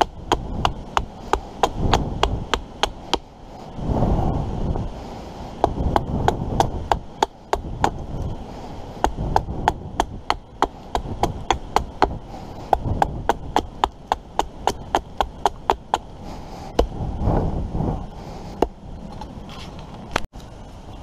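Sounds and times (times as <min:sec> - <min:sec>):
axe chopping wood: 0:00.0 - 0:03.3, 0:05.6 - 0:08.1, 0:09.0 - 0:16.1.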